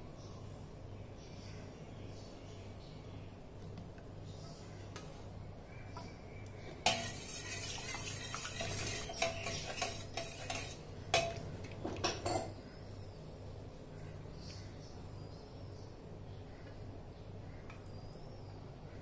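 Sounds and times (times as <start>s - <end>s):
spoon stirring in a metal pot: 6.0s - 12.6s
spoon clinking on metal: 6.8s - 11.4s.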